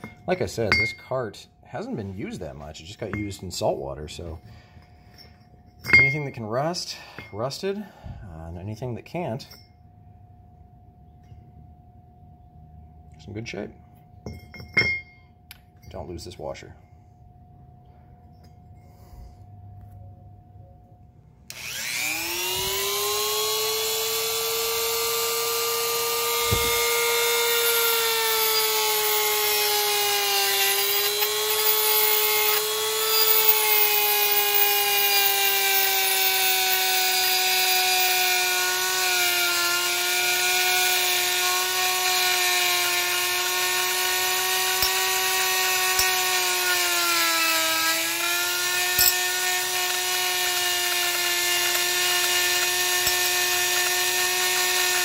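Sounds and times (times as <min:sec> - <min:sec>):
rotary tool wire brush whining: 0:21.5 - 0:55.0.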